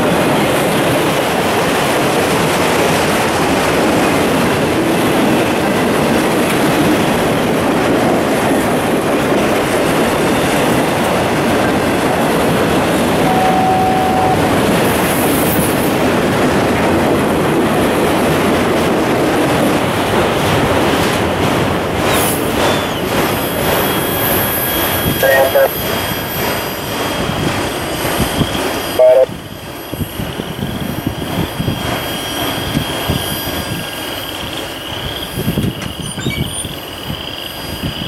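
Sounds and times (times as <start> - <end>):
freight train wheels clattering: 0.0 - 36.0
train wheel squeal: 13.0 - 16.0, 22.0 - 38.0.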